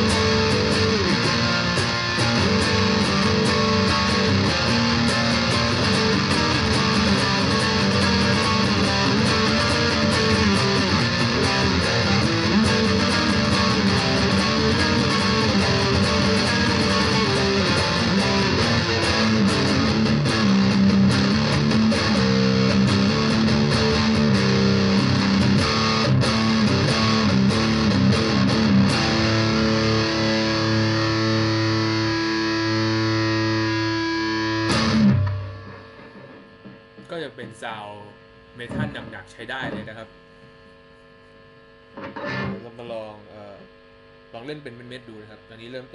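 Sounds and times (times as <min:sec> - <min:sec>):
distorted electric guitar riffing: 0:00.0 - 0:45.9.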